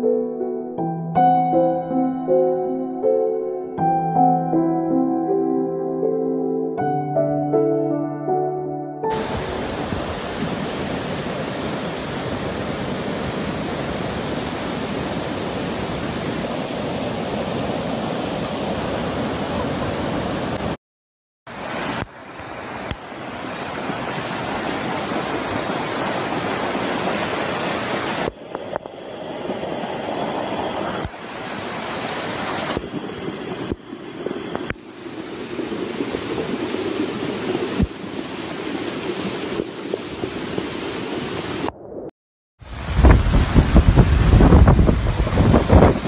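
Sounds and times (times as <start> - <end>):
floodwater rushing: 9.1 - 20.8, 21.5 - 41.7, 42.6 - 46.0.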